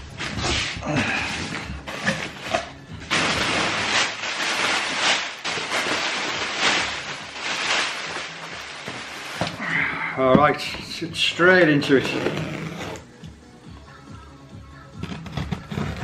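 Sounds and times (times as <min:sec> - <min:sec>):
packaging rustling and tearing: 0:00.2 - 0:09.6.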